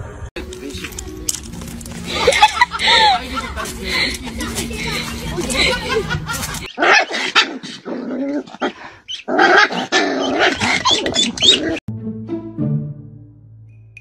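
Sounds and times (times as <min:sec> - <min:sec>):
background music: 0:00.1 - 0:06.7, 0:11.9 - 0:14.0
puppy growling and yapping: 0:06.7 - 0:11.8.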